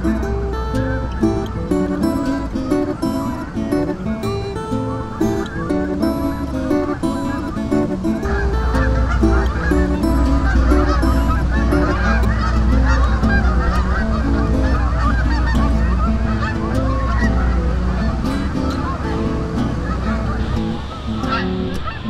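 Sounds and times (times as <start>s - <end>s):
geese honking: 0.0s - 22.0s.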